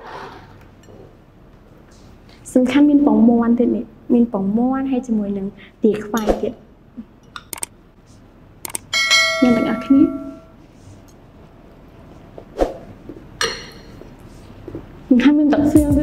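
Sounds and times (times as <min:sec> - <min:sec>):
bright bell chime: 0:09.0 - 0:10.5.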